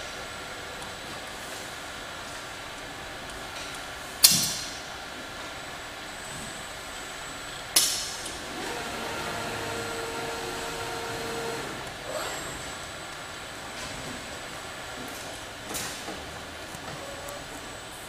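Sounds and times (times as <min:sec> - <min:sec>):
machinery background: 0:08.2 - 0:13.8
robot arm whine: 0:08.5 - 0:12.9.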